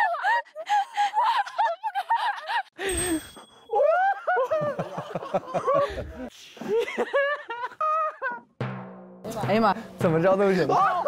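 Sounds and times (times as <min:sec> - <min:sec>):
people laughing and giggling: 0:00.0 - 0:03.0, 0:03.7 - 0:08.6.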